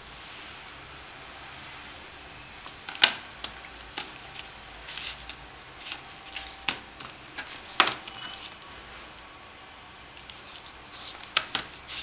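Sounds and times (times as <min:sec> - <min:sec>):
paper rustle: 0:10.2 - 0:12.0.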